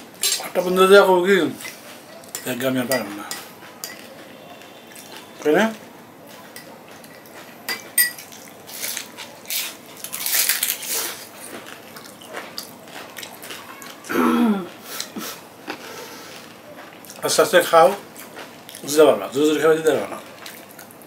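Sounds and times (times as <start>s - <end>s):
spoon clinking glass bowl: 1.6s - 4.1s, 6.6s - 8.4s
crunching and chewing: 6.3s - 19.1s, 19.9s - 21.0s.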